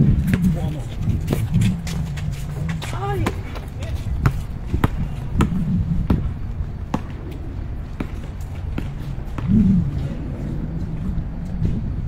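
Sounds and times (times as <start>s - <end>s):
low background noise: 0.0s - 12.0s
basketball bouncing: 3.2s - 7.2s.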